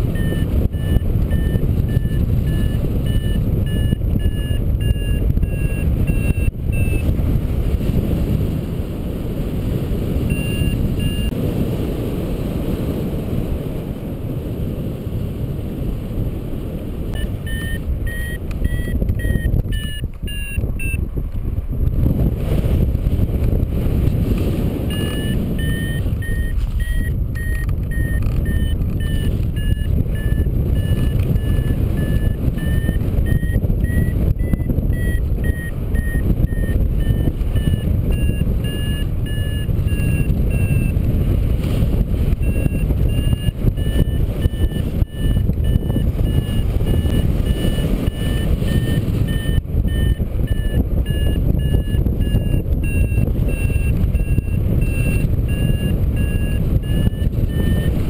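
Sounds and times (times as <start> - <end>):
variometer beeping: 0.0 - 7.2, 10.2 - 11.4, 17.1 - 21.1, 24.3 - 58.0
wind rushing on microphone: 0.0 - 58.0.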